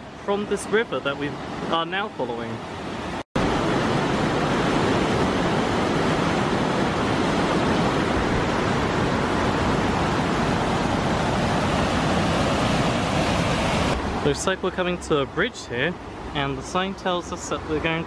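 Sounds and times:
river rushing over rocks: 2.7 - 14.3.

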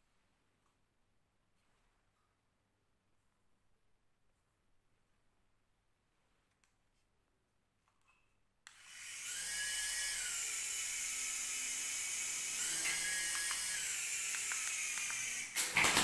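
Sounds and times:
toy helicopter rotor motor whine: 8.7 - 15.7.

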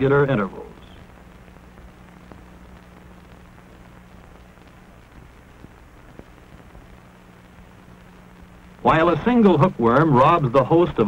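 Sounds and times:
film soundtrack hiss and hum: 0.0 - 11.0
faint clicks and pops: 0.7 - 8.8.

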